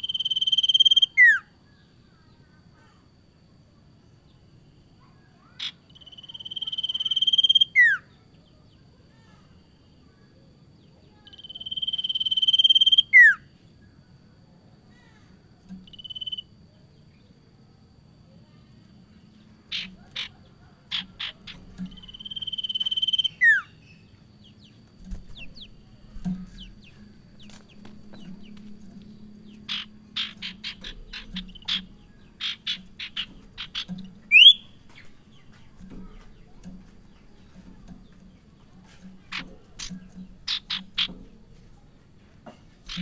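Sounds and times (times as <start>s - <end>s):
bird whistle: 0.0s - 1.5s, 6.0s - 8.1s, 11.3s - 13.5s, 15.9s - 16.4s, 19.7s - 23.8s, 29.7s - 34.8s
bird chipping notes: 19.4s - 42.0s, 42.8s - 43.0s.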